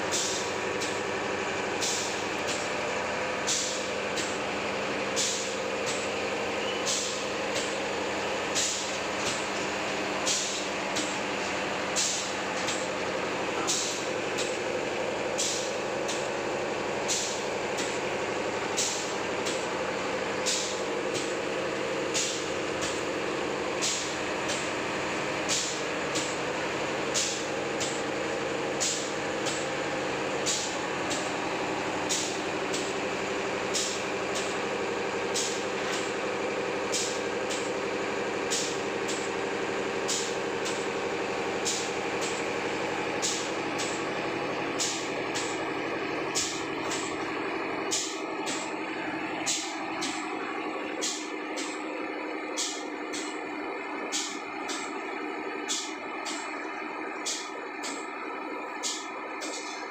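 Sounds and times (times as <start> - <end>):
steady machine hum: 0.0 - 59.9
pneumatic air hiss: 0.1 - 1.0, 1.7 - 2.7, 3.4 - 4.4, 5.1 - 13.0, 13.6 - 16.4, 17.0 - 18.0, 18.7 - 21.5, 22.1 - 24.8, 25.4 - 33.0, 33.6 - 34.6, 35.3 - 36.2, 36.9 - 37.8, 38.5 - 39.4, 40.0 - 44.1, 44.7 - 45.7, 46.3 - 48.8, 49.4 - 51.9, 52.5 - 53.4, 54.1 - 55.0, 55.7 - 56.5, 57.2 - 58.1, 58.8 - 59.8.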